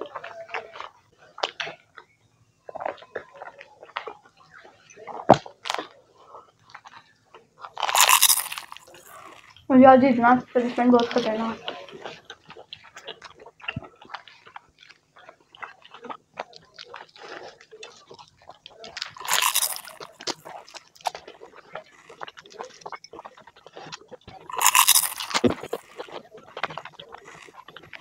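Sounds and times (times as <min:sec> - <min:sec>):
wet chewing and lip smacks: 0:00.2 - 0:09.7, 0:11.9 - 0:28.0
crunchy bites: 0:07.6 - 0:09.6, 0:18.9 - 0:21.2, 0:24.5 - 0:28.0.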